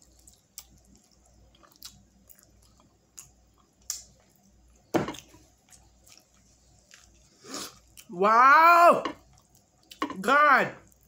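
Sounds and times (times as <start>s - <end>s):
mouth chewing wet food: 0.0s - 8.1s.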